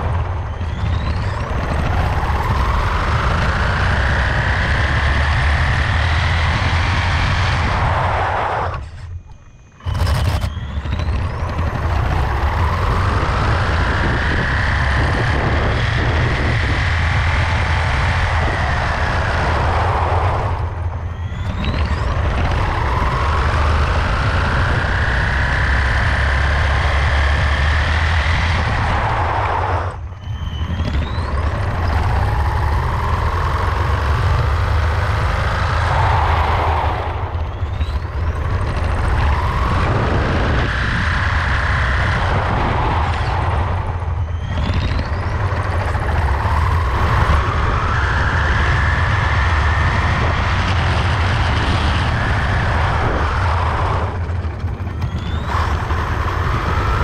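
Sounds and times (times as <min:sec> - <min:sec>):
electric motor whining: 0:00.0 - 0:57.0
tyres and wind rumble: 0:00.0 - 0:57.0.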